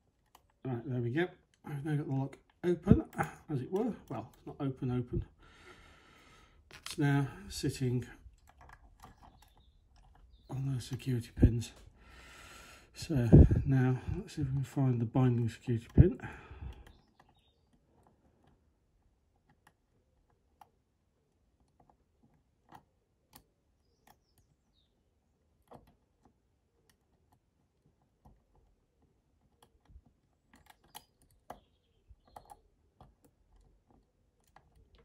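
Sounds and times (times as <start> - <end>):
lock pick clicking in lock: 6.7 - 7.0, 29.5 - 35.0.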